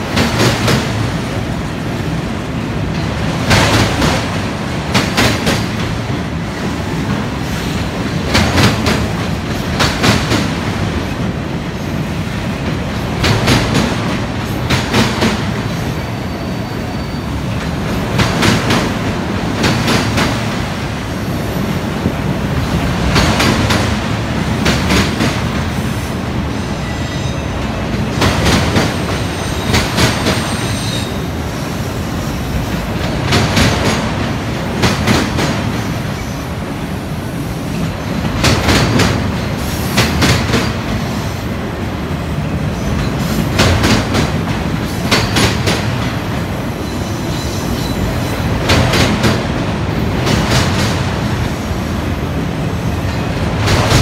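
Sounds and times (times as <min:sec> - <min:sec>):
freight train wheels rumbling: 0:00.0 - 0:54.0
high wheel squeal: 0:16.0 - 0:17.4.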